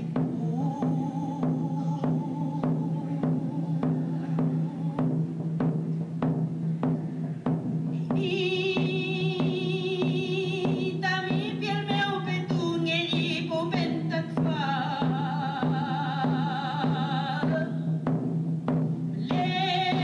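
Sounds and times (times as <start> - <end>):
high wavering voice singing: 0.0 - 5.2, 8.1 - 17.9
drum beats: 0.0 - 20.0.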